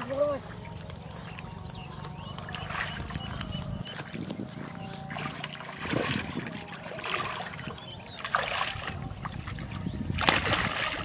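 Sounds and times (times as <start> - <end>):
hands splashing in muddy water: 2.4 - 4.2, 5.1 - 11.0.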